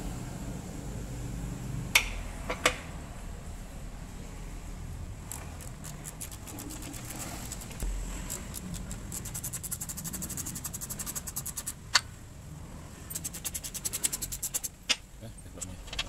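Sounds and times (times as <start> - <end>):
socket ratchet clicking: 5.2 - 12.1, 13.1 - 15.0.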